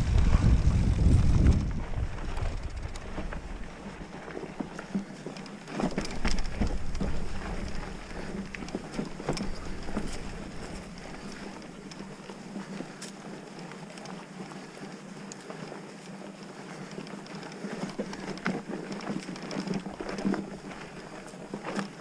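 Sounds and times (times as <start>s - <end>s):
wind rumbling on microphone: 0.0s - 4.6s, 5.9s - 11.9s
bike rattling over dirt trail: 0.0s - 22.0s.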